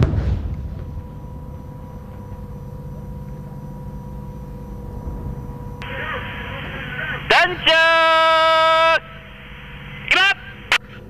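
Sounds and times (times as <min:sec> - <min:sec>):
artillery gun boom: 0:00.0 - 0:02.3
low rumble and echo: 0:00.0 - 0:11.0.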